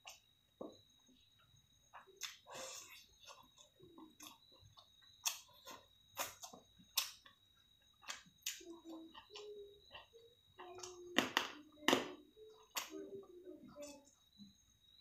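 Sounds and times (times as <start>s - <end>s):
person chewing with wet smacks: 1.4s - 11.1s.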